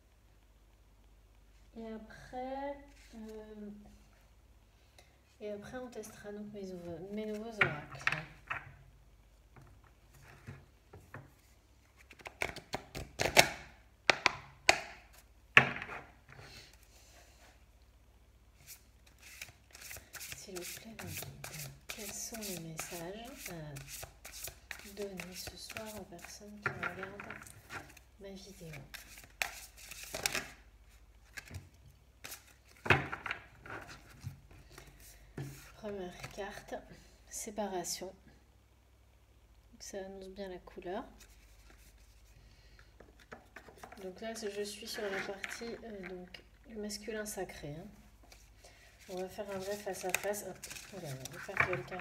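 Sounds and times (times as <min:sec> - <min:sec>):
cards being shuffled: 0:12.0 - 0:13.6, 0:18.6 - 0:30.6, 0:32.2 - 0:36.4, 0:48.2 - 0:52.0.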